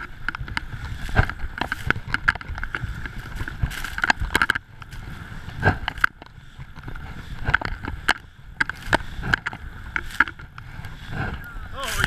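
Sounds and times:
skis swishing through powder snow: 0:00.0 - 0:12.0
wind rumbling on microphone: 0:00.0 - 0:12.0.

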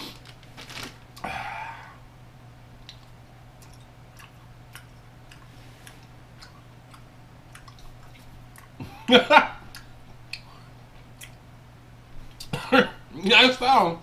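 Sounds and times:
low steady hum: 0:00.0 - 0:14.0
mouth clicks of chewing candy: 0:02.8 - 0:08.8.

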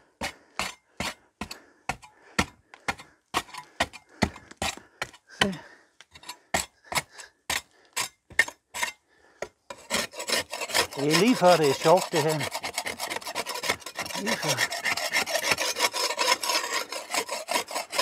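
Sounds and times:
steel spade chopping mortar: 0:00.6 - 0:05.6, 0:09.7 - 0:18.0.

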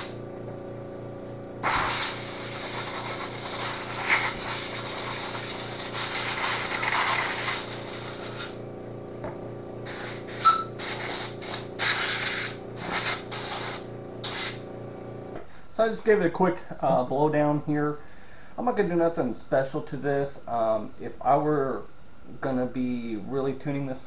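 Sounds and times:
air compressor humming: 0:00.0 - 0:15.6
air blowgun hissing: 0:01.6 - 0:08.6, 0:09.8 - 0:14.6.

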